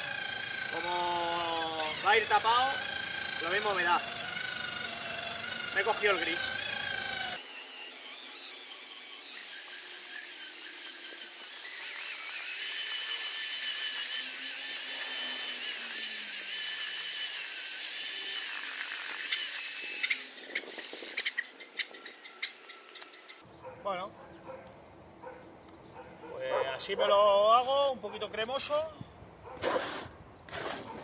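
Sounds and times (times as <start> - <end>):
electric drill mixer whining: 0.0 - 21.4.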